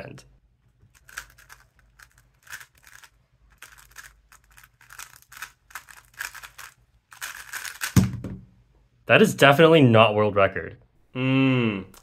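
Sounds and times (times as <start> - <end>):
puzzle cube plastic clicking: 0.9 - 8.1.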